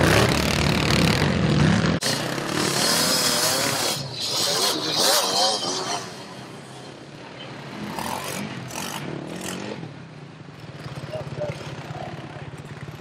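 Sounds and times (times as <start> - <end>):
quad engines revving: 0.0 - 10.0.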